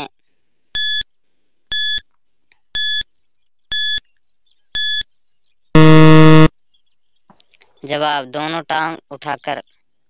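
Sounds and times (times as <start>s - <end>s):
loud low buzzer: 5.8s - 6.5s
short high-pitched beeps: 5.8s - 6.5s.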